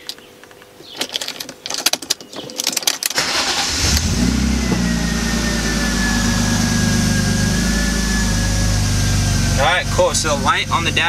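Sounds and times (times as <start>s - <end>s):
starter motor cranking: 3.1s - 6.9s
car engine idling: 3.2s - 11.0s.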